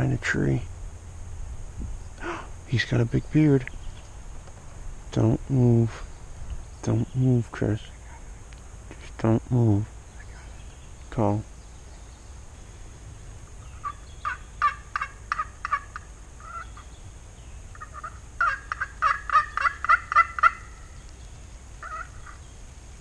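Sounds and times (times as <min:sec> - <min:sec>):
turkey call yelps: 0:13.6 - 0:16.9, 0:17.7 - 0:21.0, 0:21.8 - 0:22.4.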